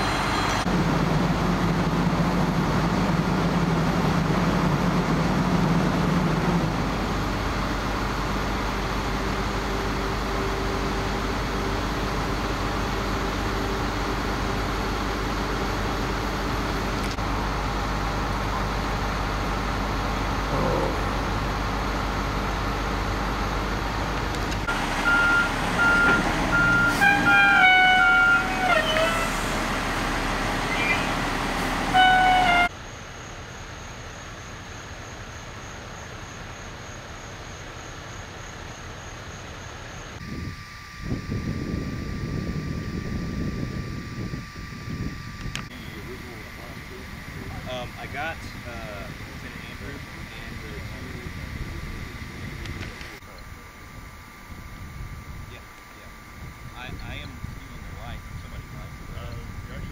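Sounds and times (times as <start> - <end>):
fire engines idling: 0.0 - 40.3, 45.5 - 59.9
stepping horn-like tones: 24.6 - 29.8, 30.5 - 32.7.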